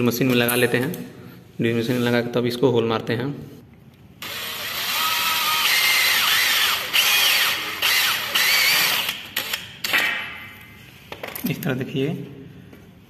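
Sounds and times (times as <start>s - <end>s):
cordless drill whining: 4.2s - 9.6s.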